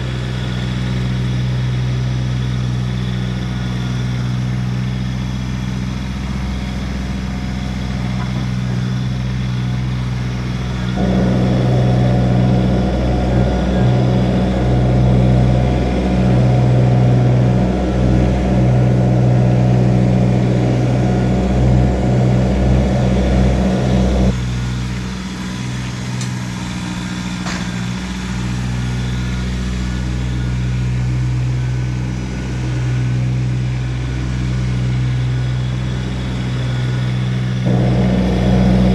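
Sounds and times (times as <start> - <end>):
loud rough noise: 0.0 - 30.3, 34.7 - 38.9
diesel tractor engine running: 0.0 - 38.9.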